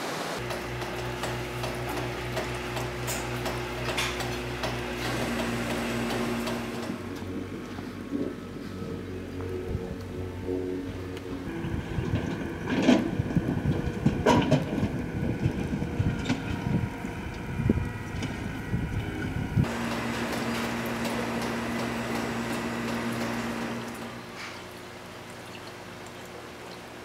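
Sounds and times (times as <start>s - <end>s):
steady low hum: 0.4s - 26.0s
wind rumbling on microphone: 7.2s - 19.7s.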